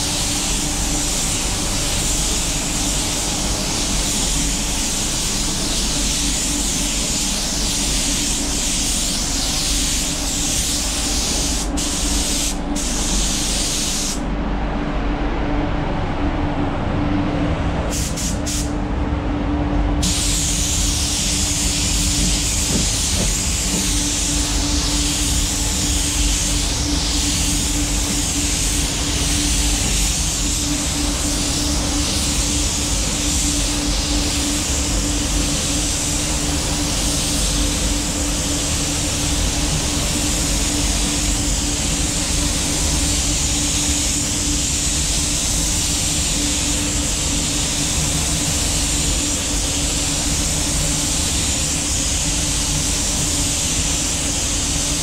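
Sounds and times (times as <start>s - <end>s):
spray gun hissing: 0.0s - 14.2s, 17.9s - 18.7s, 20.0s - 55.0s
low hum: 14.1s - 44.5s.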